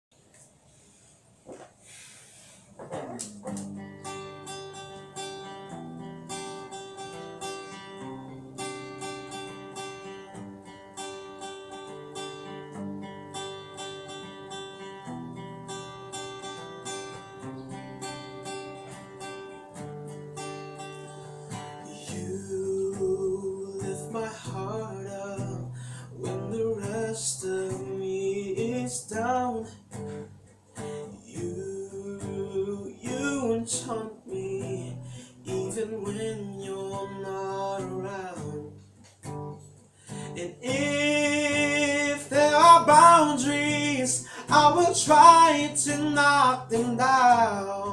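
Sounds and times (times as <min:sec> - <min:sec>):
acoustic guitar strumming: 0:02.8 - 0:47.9
man singing: 0:21.8 - 0:29.8, 0:31.0 - 0:38.8, 0:40.2 - 0:47.9.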